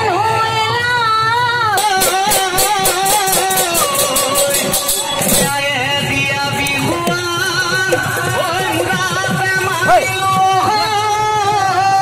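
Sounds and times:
drums: 1.7s - 12.0s
person singing: 1.8s - 5.6s
quick percussion strokes: 1.8s - 10.4s.

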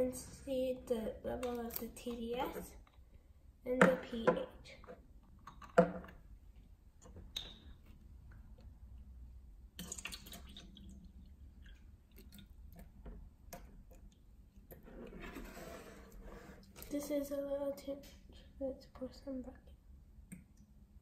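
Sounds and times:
water pouring into plastic cup: 9.8s - 12.6s.

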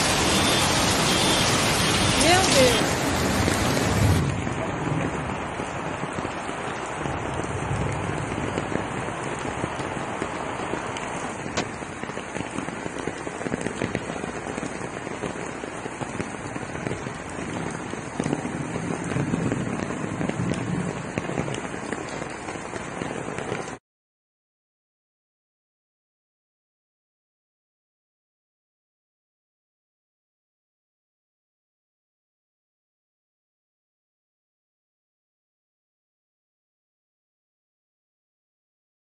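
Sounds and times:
falling rain: 0.0s - 23.8s
floodwater rushing down a street: 0.0s - 23.8s.

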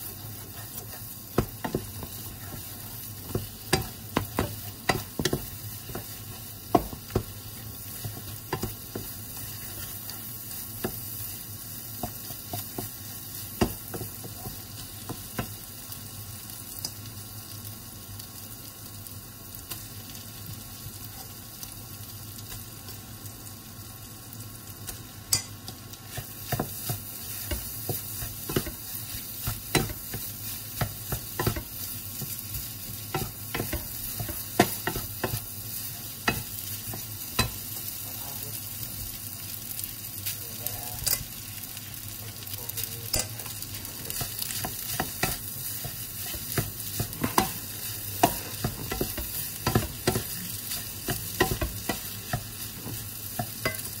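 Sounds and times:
spatula scraping and knocking pan: 0.0s - 11.2s, 25.4s - 37.9s, 43.2s - 54.0s
food sizzling in a wok: 0.0s - 54.0s.

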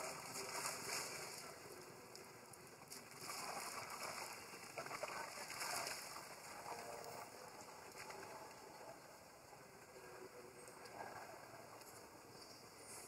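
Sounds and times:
water splashing and sloshing: 0.0s - 10.0s.

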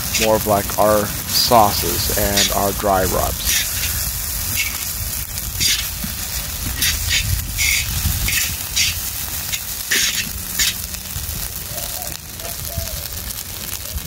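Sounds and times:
low rumble: 0.0s - 14.0s
rice sizzling: 0.0s - 14.0s
metal spatula scraping pan: 3.4s - 4.9s, 5.6s - 10.8s.

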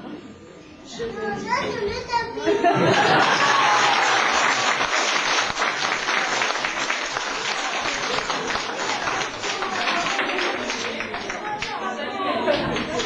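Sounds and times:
audience clapping: 2.9s - 11.9s, 12.5s - 13.0s.

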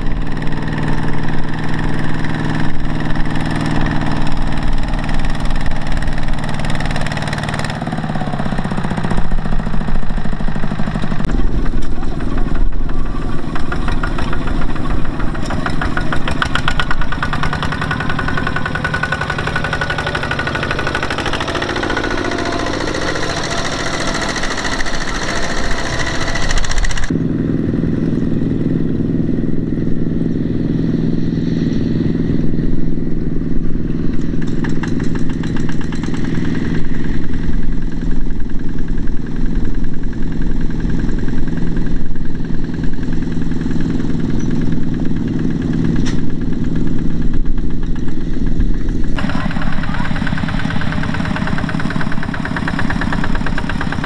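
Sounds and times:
diesel tractor engine running: 0.0s - 54.0s.

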